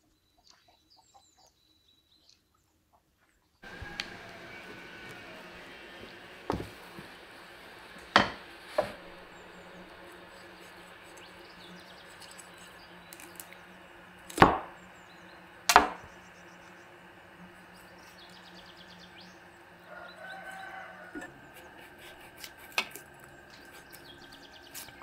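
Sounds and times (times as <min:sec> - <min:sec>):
cleaver chopping on wooden board: 0:08.2 - 0:09.0, 0:14.3 - 0:14.8, 0:15.7 - 0:16.1.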